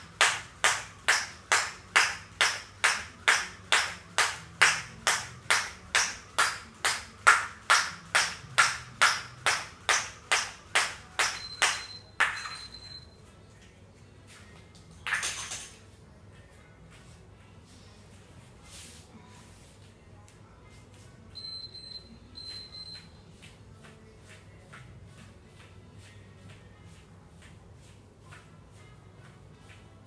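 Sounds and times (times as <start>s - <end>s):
jump rope slapping floor mat: 0.1s - 11.8s
high electronic timer beeps: 11.3s - 13.2s, 21.4s - 23.2s.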